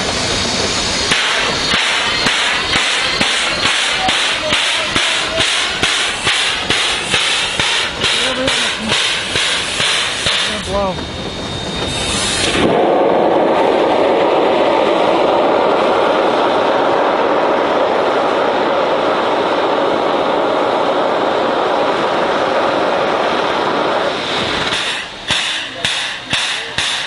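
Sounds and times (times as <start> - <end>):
steam hissing from valve: 0.0 - 10.9, 11.7 - 14.0, 21.6 - 27.0.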